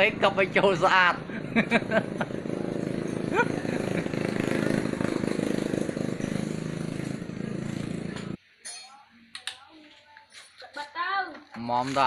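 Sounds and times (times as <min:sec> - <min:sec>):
motorbike engine idling: 0:00.0 - 0:08.4.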